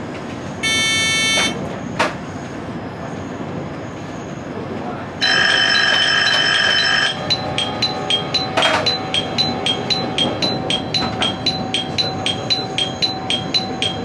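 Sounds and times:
electric warning bell: 0.6 - 1.6, 5.2 - 14.0
alternating two-tone chime: 6.6 - 14.0.

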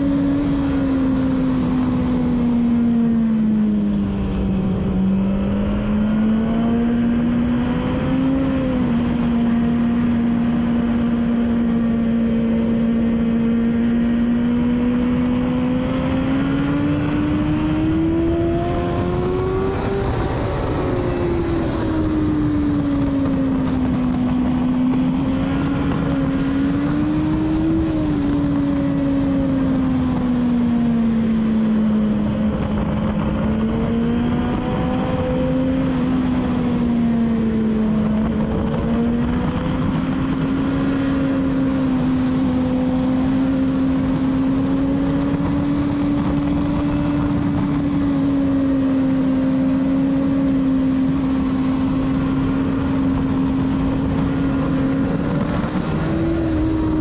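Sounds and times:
motorcycle engine accelerating: 0.0 - 57.0
wind rush: 0.0 - 57.0.

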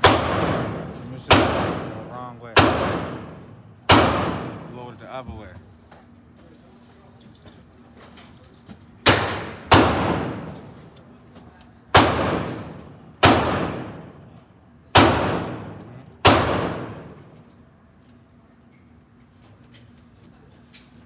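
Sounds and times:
echoing gunshots: 0.0 - 4.7, 9.1 - 10.7, 11.9 - 14.3, 14.9 - 17.2.

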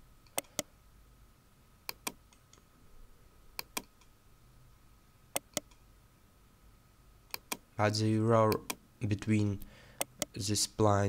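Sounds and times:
computer mouse clicking: 0.3 - 0.7, 1.9 - 2.6, 3.6 - 4.1, 5.4 - 5.8, 7.3 - 7.7, 8.5 - 8.8, 10.0 - 10.4.

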